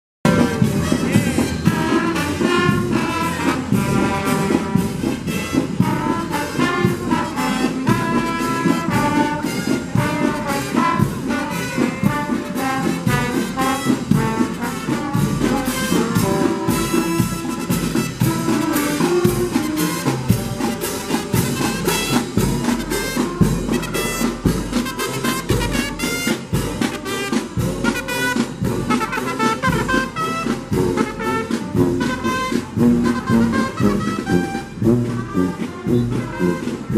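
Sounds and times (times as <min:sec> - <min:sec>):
drums keeping a beat: 0:00.2 - 0:36.9
brass and saxophones playing: 0:00.3 - 0:36.9.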